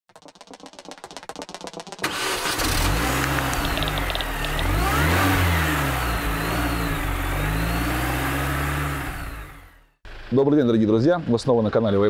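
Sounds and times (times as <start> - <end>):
car engine revving: 2.0 - 10.0.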